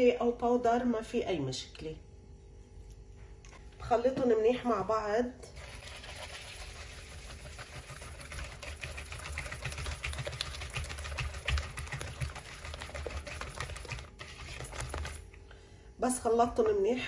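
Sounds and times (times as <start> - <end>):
whisk beating in plastic bowl: 5.6 - 15.3.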